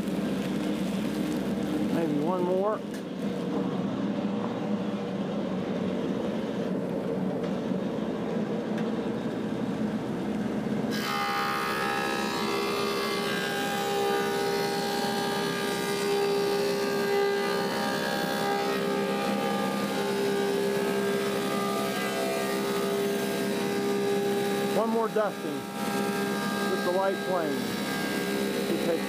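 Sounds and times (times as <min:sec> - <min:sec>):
planer running: 0:08.2 - 0:29.0.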